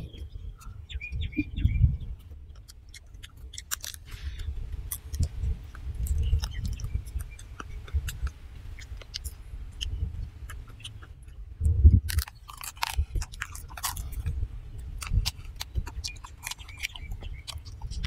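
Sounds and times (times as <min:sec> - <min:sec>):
bird chirps: 0:00.0 - 0:03.1, 0:06.0 - 0:11.4, 0:15.7 - 0:18.0
chewing and crunching: 0:00.0 - 0:18.0.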